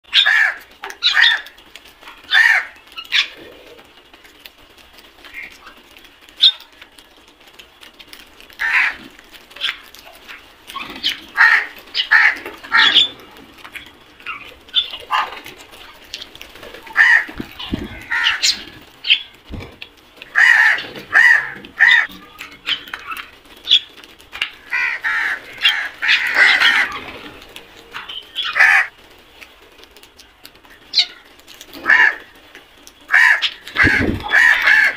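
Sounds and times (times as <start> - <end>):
crows cawing: 0.1 - 1.5, 2.3 - 3.3, 8.6 - 10.4, 11.0 - 13.1, 16.8 - 18.8, 20.3 - 22.2, 24.6 - 27.2, 28.4 - 28.9, 31.8 - 32.3, 33.1 - 34.9.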